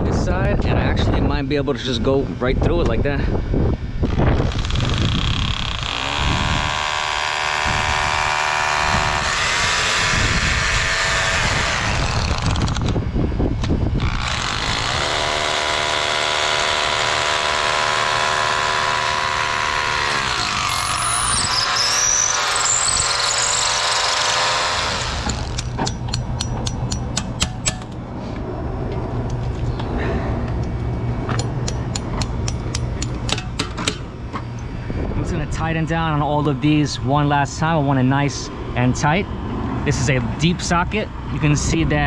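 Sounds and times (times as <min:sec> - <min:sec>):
rotary hammer drilling into brick: 0:04.1 - 0:13.0, 0:14.0 - 0:27.5.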